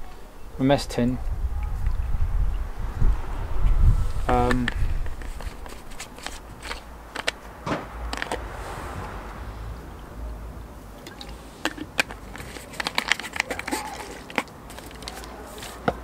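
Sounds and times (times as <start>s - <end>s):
steady low rumble: 0.0s - 11.4s.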